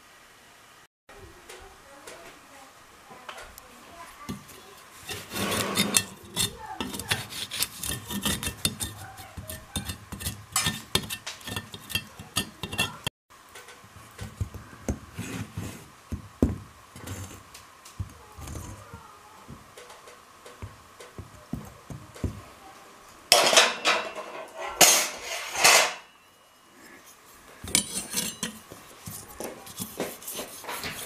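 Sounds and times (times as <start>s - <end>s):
knife scraping plaster: 4.3s - 13.1s, 15.1s - 15.9s, 17.0s - 17.4s, 27.6s - 31.0s.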